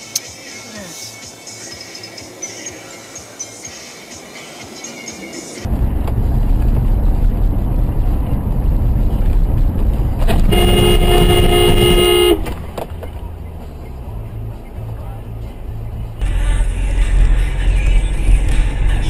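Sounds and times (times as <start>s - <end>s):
road and engine rumble: 0.0s - 19.0s
car horn blast: 10.3s - 12.6s.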